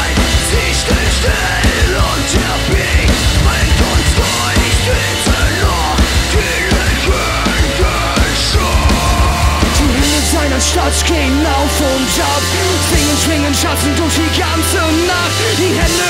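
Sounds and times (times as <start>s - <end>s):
rock band playing: 0.0s - 16.0s.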